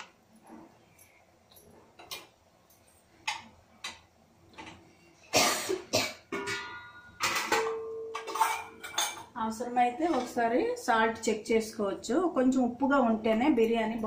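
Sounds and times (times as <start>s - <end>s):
faint knocks of cookware: 6.3s - 9.3s.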